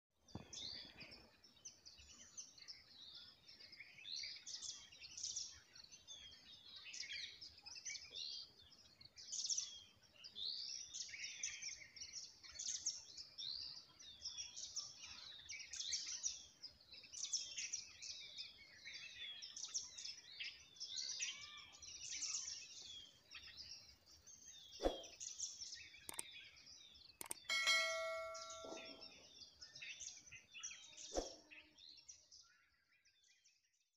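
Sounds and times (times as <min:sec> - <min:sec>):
small birds chirping: 0:00.2 - 0:33.9
sharp clicks: 0:27.2 - 0:28.6
bell-like chime: 0:27.2 - 0:29.2.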